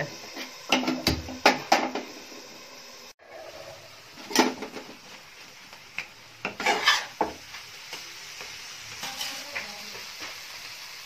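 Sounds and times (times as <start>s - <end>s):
food sizzling: 0.0s - 11.0s
spatula scraping a frying pan: 6.4s - 7.5s, 9.0s - 9.7s.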